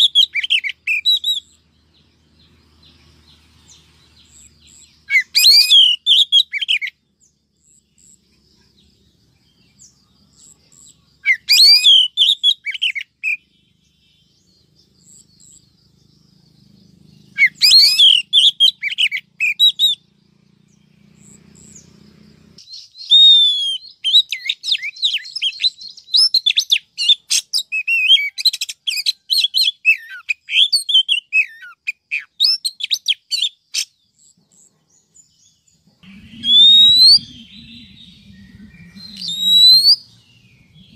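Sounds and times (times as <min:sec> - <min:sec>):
bird whistles and chirps: 0:00.0 - 0:01.7, 0:03.3 - 0:07.0, 0:09.7 - 0:14.3, 0:17.1 - 0:20.2, 0:22.6 - 0:40.9.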